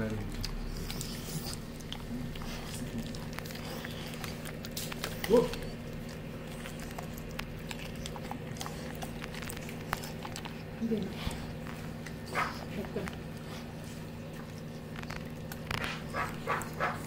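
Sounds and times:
dog crunching vegetables: 0.0 - 17.0
steady low hum: 0.0 - 17.0.

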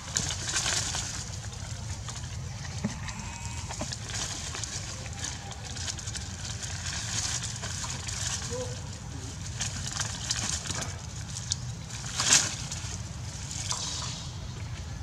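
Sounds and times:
dry leaves rustling: 0.0 - 15.0.

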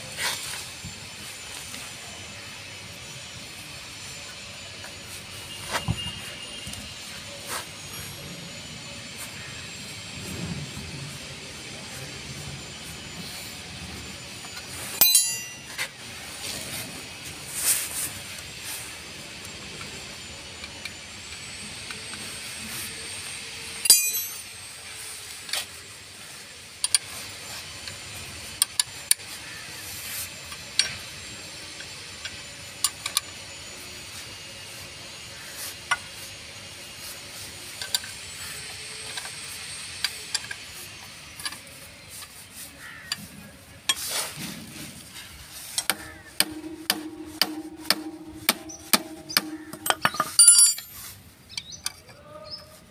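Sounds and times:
spanner clinking against nuts: 14.4 - 16.0, 23.8 - 24.7, 45.7 - 52.2.

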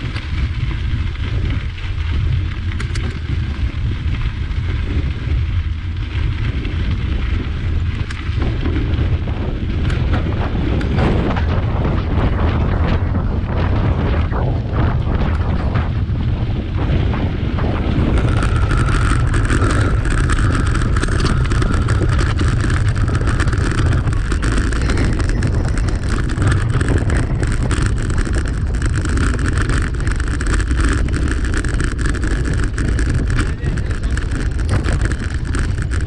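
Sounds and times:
bike rattling over cobblestones: 0.0 - 36.0
wind buffeting microphone: 0.0 - 36.0
steady higher hum: 15.2 - 36.0.

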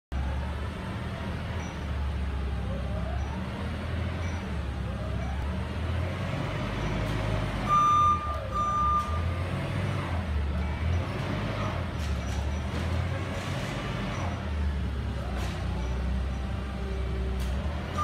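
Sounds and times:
forklift engine hum: 0.1 - 18.0
loud warning beeps: 7.6 - 9.4.

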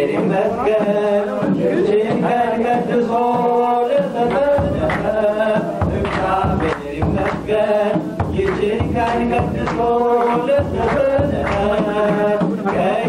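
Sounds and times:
congregation singing a hymn: 0.0 - 13.0
hand clapping: 2.1 - 13.0
deep drum strokes: 4.2 - 12.6.

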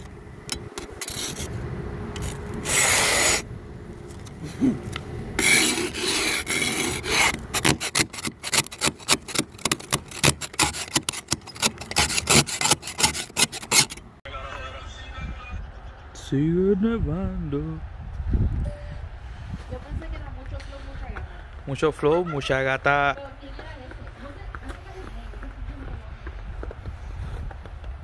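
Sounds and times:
ice scraper scraping windshield: 0.8 - 1.5, 2.2 - 3.5, 5.4 - 14.1.

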